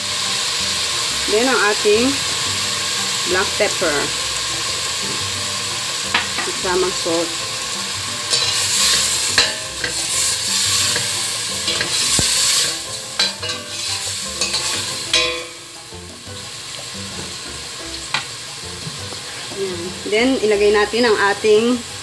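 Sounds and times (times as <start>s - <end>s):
food sizzling in hot oil: 0.0s - 22.0s
utensil scraping a pot: 8.1s - 15.3s.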